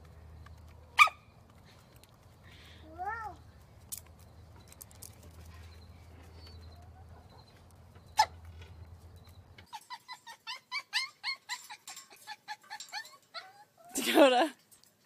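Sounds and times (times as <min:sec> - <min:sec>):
small dog yapping: 0:01.0 - 0:01.2.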